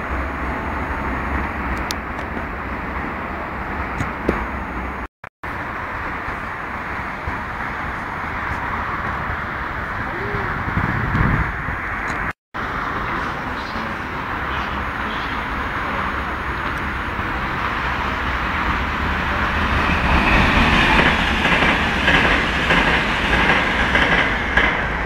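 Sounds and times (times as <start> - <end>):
electric train rumbling on rails: 0.0 - 25.0
high-pitched rail noise: 12.6 - 25.0.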